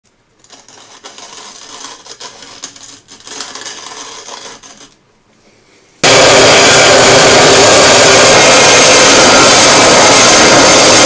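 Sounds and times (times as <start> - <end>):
coffee grinder crackling rattle: 0.4 - 5.0.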